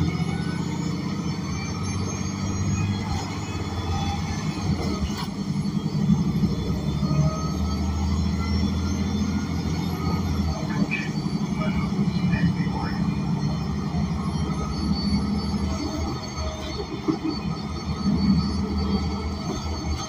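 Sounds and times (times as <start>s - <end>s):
bus engine drone: 0.0s - 20.0s.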